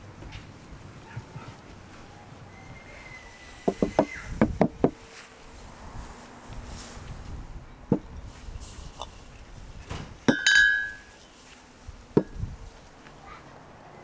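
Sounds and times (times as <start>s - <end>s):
glassy clink: 10.3s - 11.1s.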